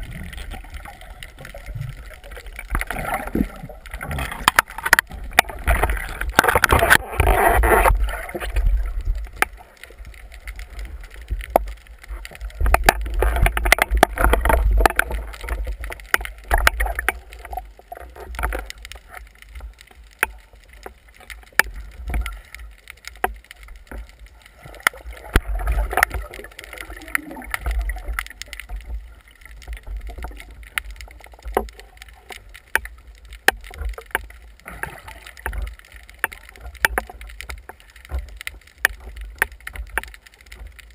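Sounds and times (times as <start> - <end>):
water sloshing and gurgling: 0.0 - 40.9
water splashing: 0.0 - 40.9
sharp clicks and knocks: 1.3 - 40.9.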